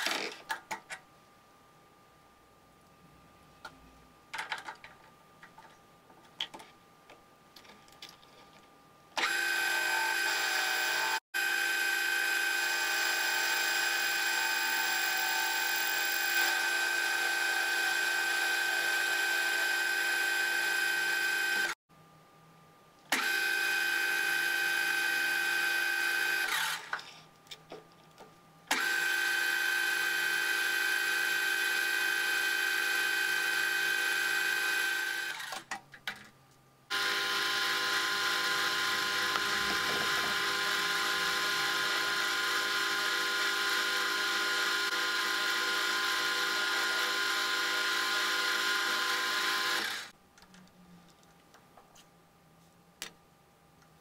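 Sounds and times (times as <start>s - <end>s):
electric motor whining: 9.2s - 21.8s, 36.9s - 50.1s.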